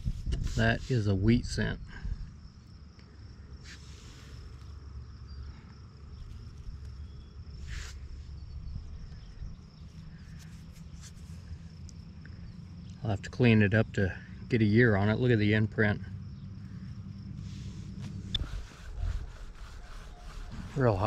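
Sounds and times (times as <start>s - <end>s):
wind rumble on microphone: 0.0s - 2.6s, 6.6s - 10.3s, 17.4s - 21.0s
hands rustling soil: 2.8s - 13.0s
soil crackling: 16.7s - 21.0s.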